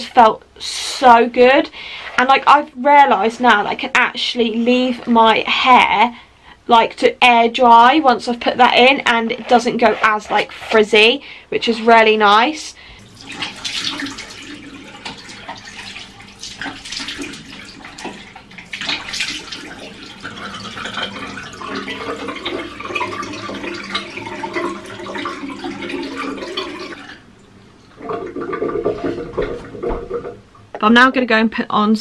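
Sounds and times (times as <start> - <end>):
water splashing on face: 13.0 - 27.2
tap running into basin: 13.0 - 30.7.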